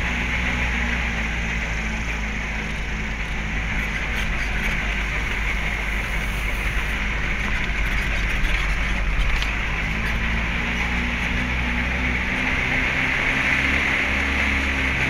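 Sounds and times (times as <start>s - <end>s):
car engine hum: 0.0s - 15.0s
road and tyre noise: 0.0s - 15.0s
light rattles and clicks: 2.1s - 11.5s.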